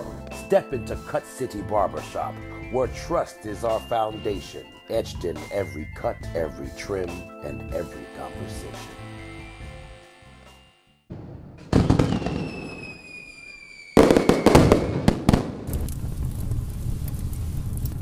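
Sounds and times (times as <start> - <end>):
firework bang: 11.1 - 17.8
falling whistle: 12.1 - 15.1
sharp crackling pops: 14.0 - 18.0.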